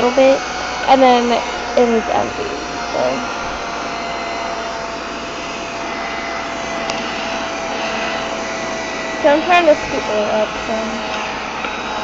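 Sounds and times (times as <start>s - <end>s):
vacuum cleaner whining: 0.0s - 12.0s.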